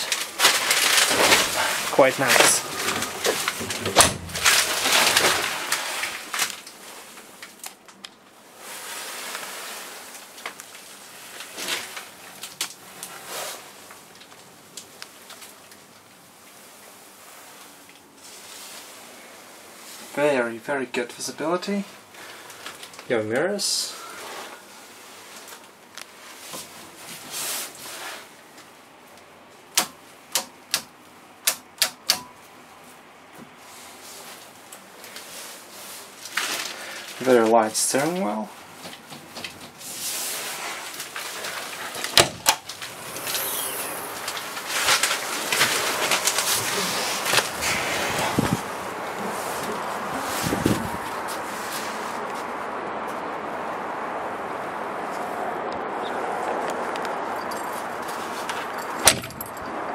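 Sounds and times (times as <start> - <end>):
clicks and rustles: 0.0 - 8.3, 38.0 - 52.5, 56.6 - 59.8.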